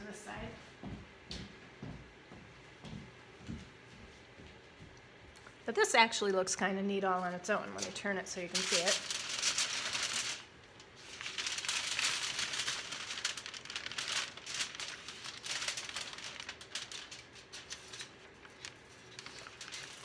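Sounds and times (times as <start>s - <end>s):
aluminium foil crinkling: 7.8s - 20.0s.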